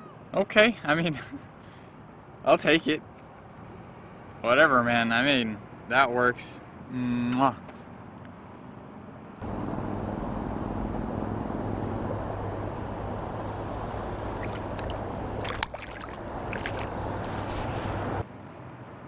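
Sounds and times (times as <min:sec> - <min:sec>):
steady low hum: 0:09.4 - 0:18.3
water rushing and gurgling: 0:09.5 - 0:18.2.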